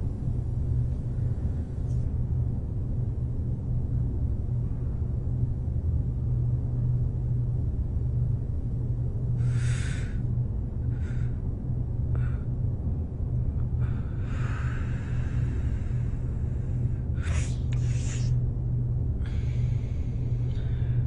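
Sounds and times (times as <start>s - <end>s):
steady low hum: 0.0s - 21.0s
short breathy sounds: 17.2s - 18.3s.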